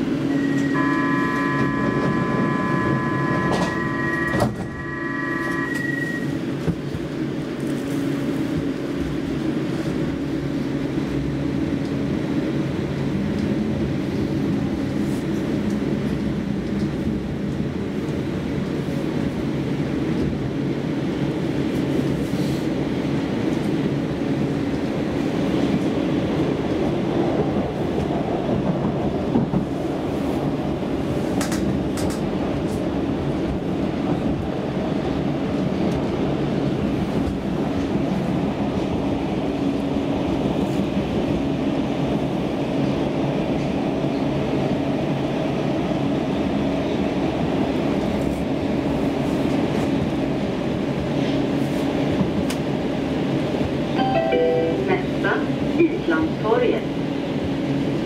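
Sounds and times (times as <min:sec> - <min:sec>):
wheels rumbling on rail: 0:00.0 - 0:58.0
electronic warning tone: 0:00.3 - 0:06.4
train doors knocking shut: 0:00.5 - 0:04.9.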